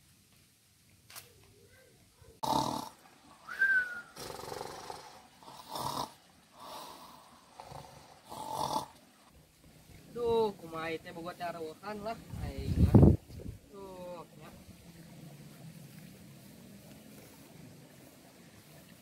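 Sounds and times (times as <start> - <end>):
men snoring: 2.4 - 9.0
high whistle in snore: 3.4 - 4.4.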